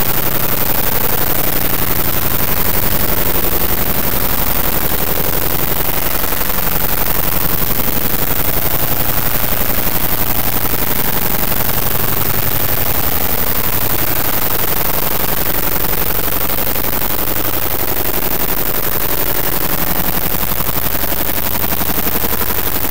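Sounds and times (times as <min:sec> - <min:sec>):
steady low tones: 0:00.0 - 0:17.0
fast even rattle: 0:00.0 - 0:22.9.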